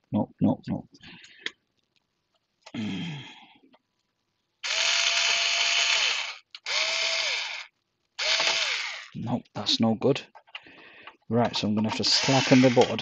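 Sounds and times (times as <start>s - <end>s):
electric screwdriver whining: 4.6s - 9.2s, 11.9s - 13.0s.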